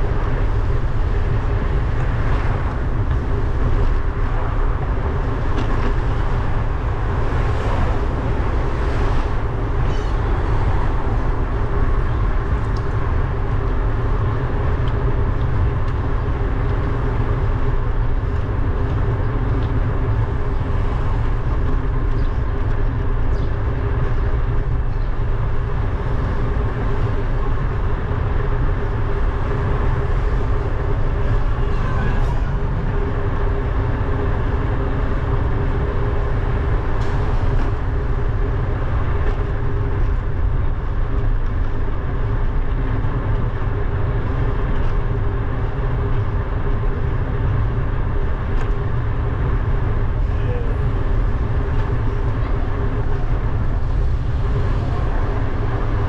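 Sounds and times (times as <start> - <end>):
road rumble: 0.0 - 56.0
wind rush on microphone: 0.0 - 56.0.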